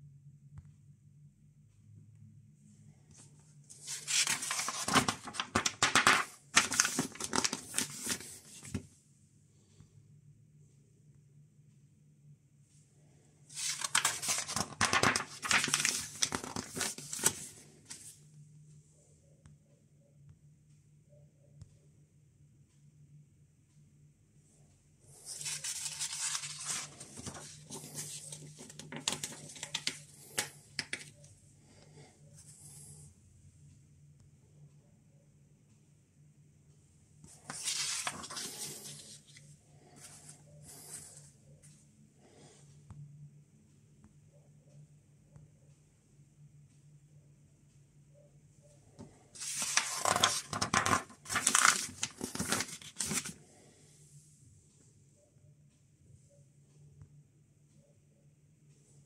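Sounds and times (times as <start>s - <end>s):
paper pages rustling: 3.7s - 8.9s, 13.5s - 18.2s, 25.2s - 31.1s, 37.3s - 41.2s, 49.4s - 53.4s.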